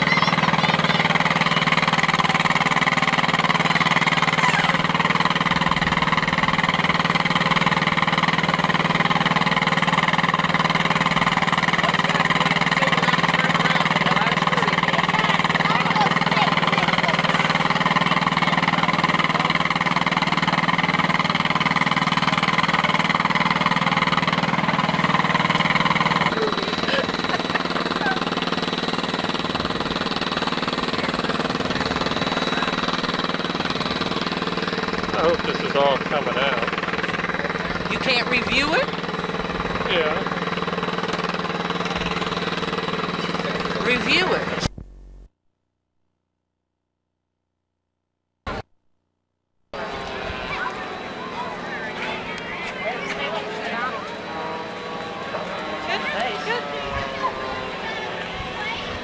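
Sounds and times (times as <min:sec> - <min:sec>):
engine idling: 0:00.0 - 0:45.3, 0:49.8 - 0:59.0.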